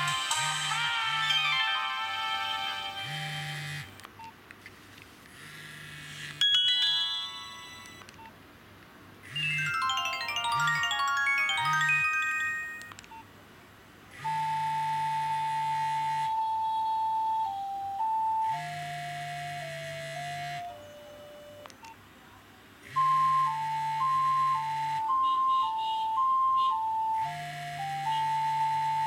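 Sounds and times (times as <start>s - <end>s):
phone message alert tones: 9.4s - 13.0s.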